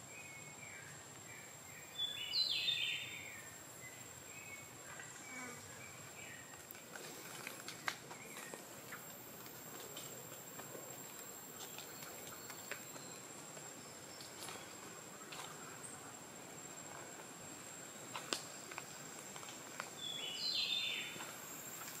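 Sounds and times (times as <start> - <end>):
background hiss: 0.0 - 22.0
footsteps and rustling leaves: 6.0 - 22.0.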